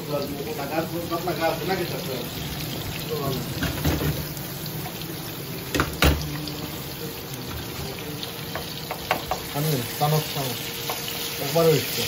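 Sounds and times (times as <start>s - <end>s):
masala sizzling in a frying pan: 0.0s - 12.0s
spatula knocking against pan: 8.5s - 9.5s.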